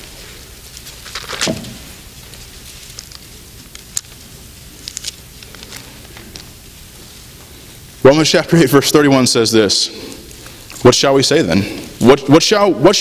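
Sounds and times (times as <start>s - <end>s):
bible pages rustling: 0.0s - 7.9s
sharp clicks and crinkles: 0.4s - 6.6s.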